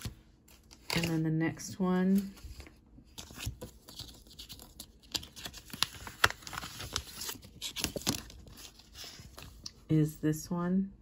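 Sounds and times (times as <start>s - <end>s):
plastic sleeve crinkling: 3.3s - 9.6s.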